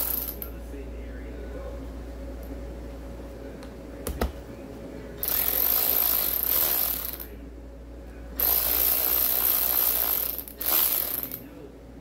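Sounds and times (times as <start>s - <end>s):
power driver spinning bolts: 8.4s - 11.4s.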